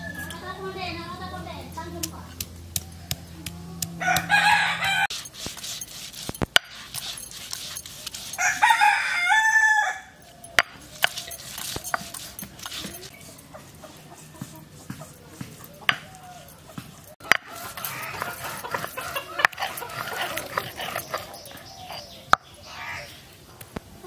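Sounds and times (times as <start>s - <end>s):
rooster crowing: 0.0s - 0.4s, 3.9s - 5.1s, 8.3s - 10.3s, 17.4s - 19.5s
stone roller pounding on grinding stone: 1.8s - 9.6s, 10.2s - 22.5s.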